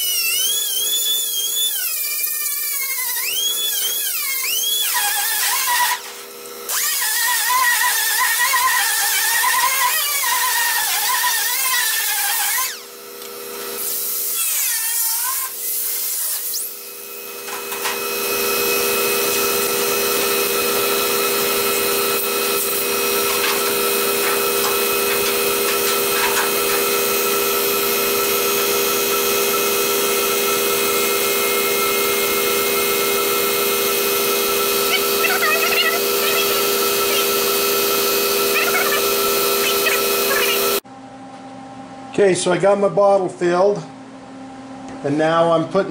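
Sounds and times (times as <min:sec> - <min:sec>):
air sanding tool whirring: 0:00.0 - 0:40.8
steady machine hum: 0:16.8 - 0:45.4.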